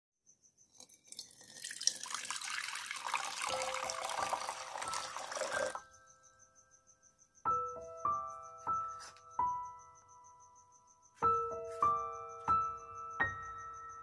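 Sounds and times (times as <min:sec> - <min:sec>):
water pouring into a bowl: 0:00.7 - 0:05.8.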